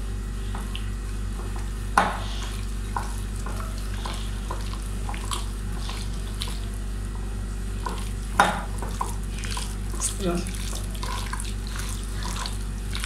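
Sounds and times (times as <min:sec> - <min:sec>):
steady low hum: 0:00.0 - 0:13.0
hand squishing wet chicken: 0:02.4 - 0:06.8, 0:07.8 - 0:13.0.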